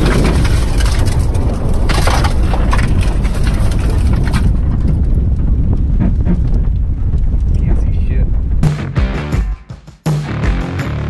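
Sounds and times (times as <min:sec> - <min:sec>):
tyres spinning on dirt: 0:00.0 - 0:08.5
wind buffeting microphone: 0:00.0 - 0:08.6.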